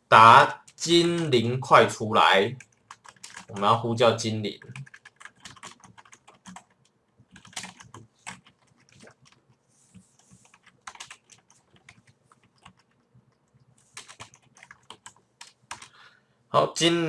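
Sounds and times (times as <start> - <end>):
typing on computer keyboard: 2.6 - 3.8, 4.6 - 9.6, 10.2 - 16.0.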